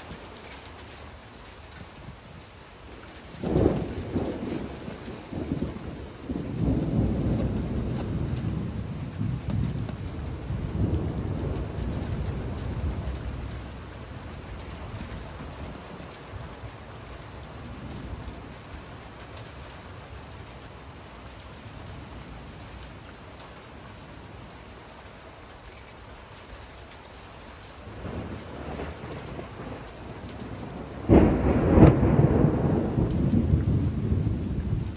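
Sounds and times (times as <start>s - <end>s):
thunder rumble: 0.0s - 25.4s, 27.6s - 34.9s
steady rain: 0.0s - 34.9s.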